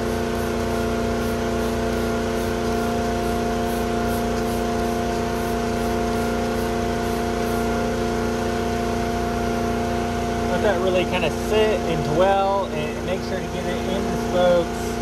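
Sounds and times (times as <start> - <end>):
spray bottle squirting: 0.0 - 7.6
loud machine hum: 0.0 - 15.0.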